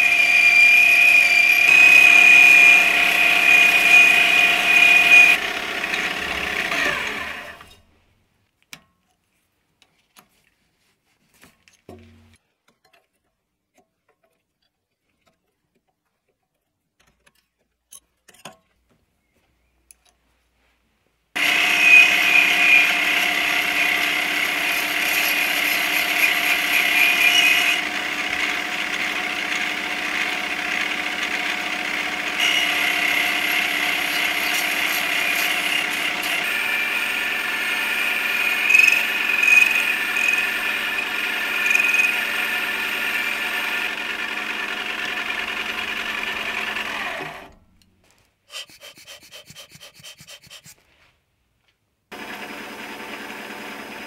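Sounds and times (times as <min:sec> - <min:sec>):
lathe running with a whine: 0:00.0 - 0:07.6, 0:21.4 - 0:47.5, 0:52.2 - 0:54.0.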